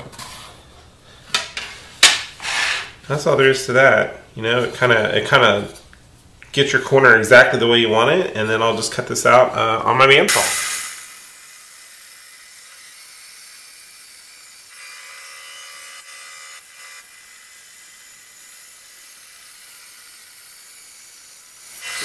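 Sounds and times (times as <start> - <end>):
bandsaw cutting wood: 10.3 - 22.0.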